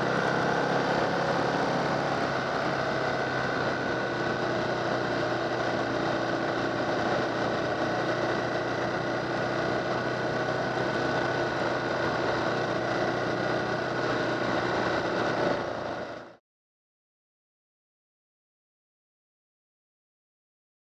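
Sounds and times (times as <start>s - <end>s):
motorcycle engine cruising: 0.0s - 16.4s.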